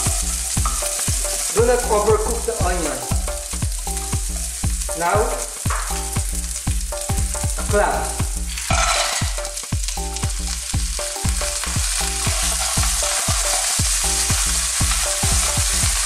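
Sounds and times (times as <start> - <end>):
oil sizzling in a frying pan: 0.0 - 16.0
wooden spoon knocking pan: 0.1 - 1.6, 5.6 - 6.3.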